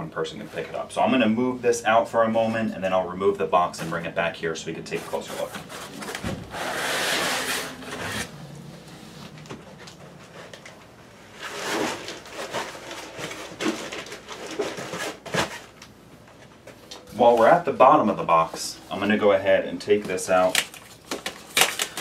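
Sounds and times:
foam rubbing against cardboard: 4.9s - 8.3s
handling rustles and knocks: 8.8s - 17.6s.

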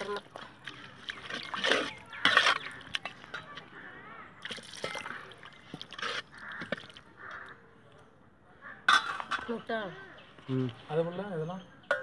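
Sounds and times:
gravy sloshing in a pot: 0.0s - 3.3s.

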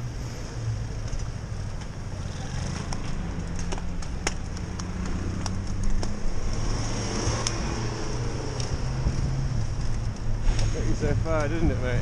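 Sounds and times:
city traffic rumble: 0.0s - 12.0s
sharp clicks and ticks: 2.6s - 7.6s, 8.4s - 11.8s.

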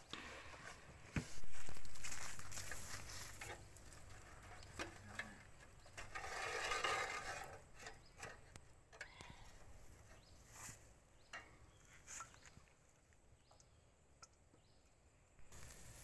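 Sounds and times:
metal bowl scraping: 1.3s - 8.4s.

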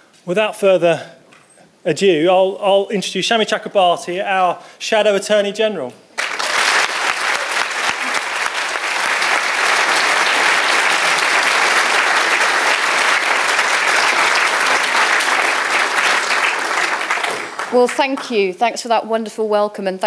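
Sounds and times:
audience applauding: 6.2s - 18.4s.

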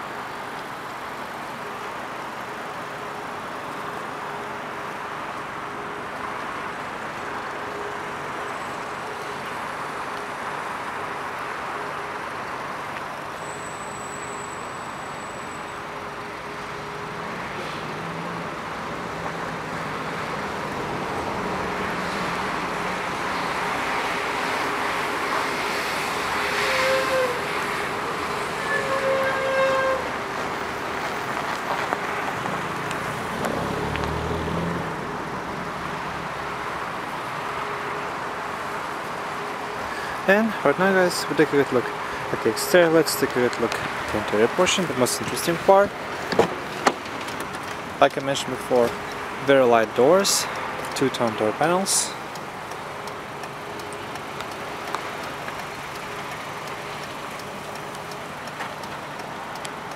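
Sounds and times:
steady vehicle noise: 0.0s - 59.9s
short horn toots: 26.4s - 27.5s, 28.5s - 30.1s.

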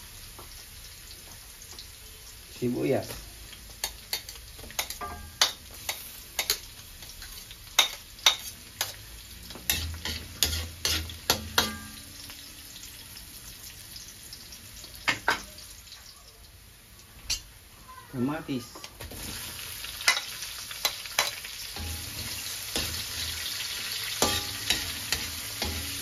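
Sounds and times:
onion sizzling in hot oil: 0.0s - 26.0s
spatula clacking and scraping pan: 3.7s - 12.1s, 19.2s - 26.0s.

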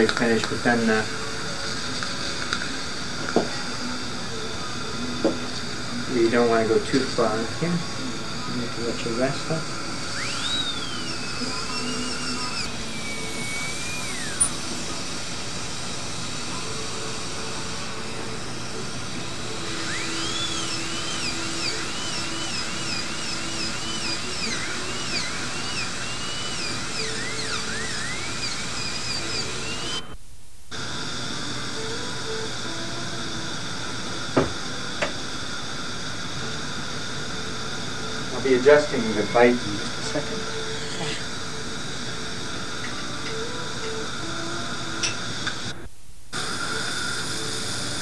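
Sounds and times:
dental drill whining: 0.0s - 48.0s
suction hiss: 0.0s - 48.0s
steady hiss: 28.2s - 48.0s.

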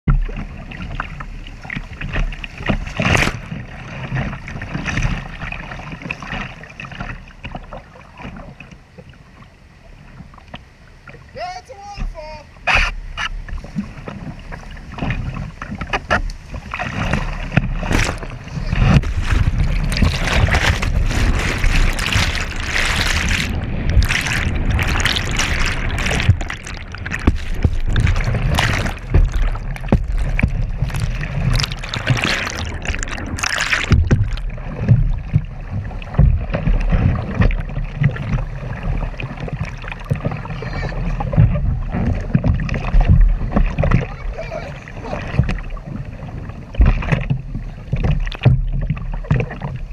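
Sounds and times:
paddle knocking against hull: 12.0s - 49.9s
rushing white water: 16.3s - 41.3s.

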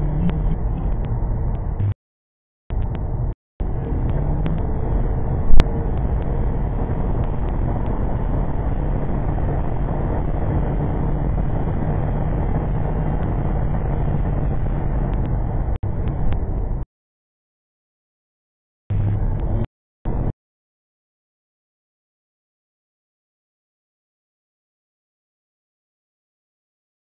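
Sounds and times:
low engine drone: 0.0s - 2.0s, 2.7s - 16.8s, 18.9s - 20.3s
wind buffeting: 2.7s - 16.8s
tyre noise on wet road: 3.6s - 16.8s.

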